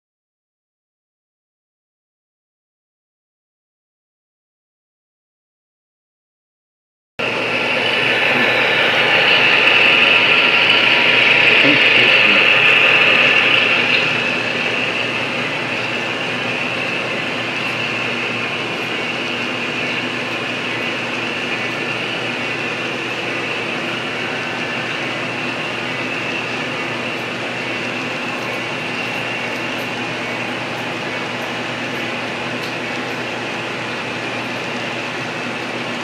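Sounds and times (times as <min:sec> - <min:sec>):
model train running on track: 0:07.2 - 0:36.0.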